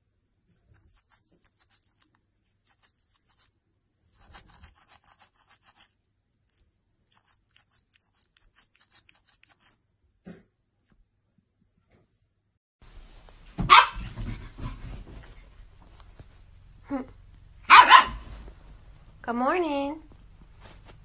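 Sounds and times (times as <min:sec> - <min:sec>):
toothbrush scrubbing dog's teeth: 0:00.5 - 0:03.5, 0:04.1 - 0:09.8.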